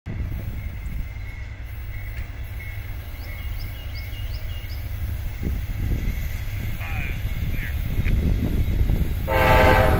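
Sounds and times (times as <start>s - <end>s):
distant diesel locomotives rumbling: 0.1s - 9.9s
bird chirping: 0.6s - 6.7s.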